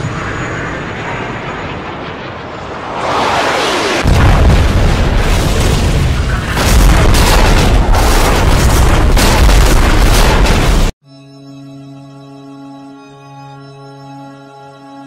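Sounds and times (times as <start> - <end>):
deep explosion boom: 4.0 - 10.9
soft sustained music: 11.0 - 15.0.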